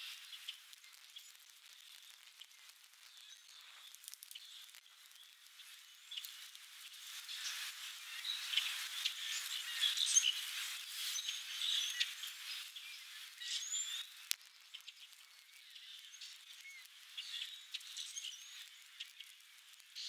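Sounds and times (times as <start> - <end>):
small birds chirping: 0.0 - 20.0
faint clicks: 0.3 - 7.6, 13.4 - 20.0.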